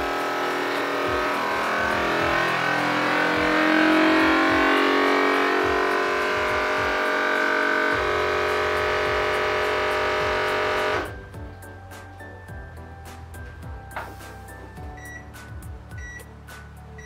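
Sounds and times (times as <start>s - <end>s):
vacuum sealer pump running: 0.0s - 11.2s.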